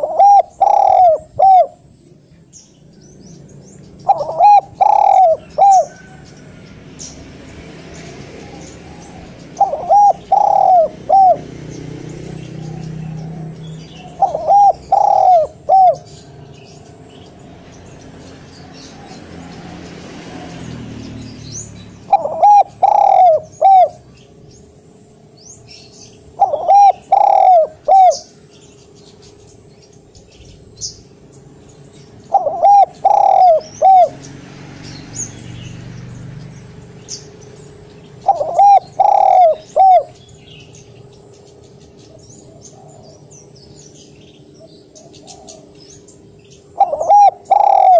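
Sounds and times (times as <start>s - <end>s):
dove cooing: 0.0s - 1.9s, 4.0s - 6.6s, 8.3s - 17.0s, 22.0s - 24.2s, 25.7s - 28.4s, 32.2s - 34.3s, 38.1s - 40.3s, 42.1s - 44.0s, 44.6s - 46.0s, 46.6s - 47.9s
faint high bird chirps: 0.0s - 7.2s.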